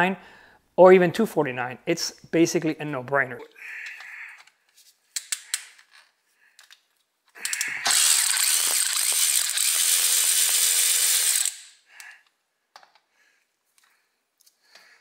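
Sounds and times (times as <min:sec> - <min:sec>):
power tool whirring: 0:07.4 - 0:12.1.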